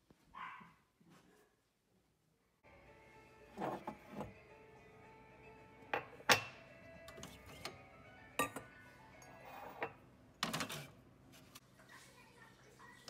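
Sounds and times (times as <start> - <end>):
faint music: 2.6 - 10.7, 11.3 - 13.0
mug clinking on hard surfaces: 5.9 - 6.6, 8.4 - 10.0.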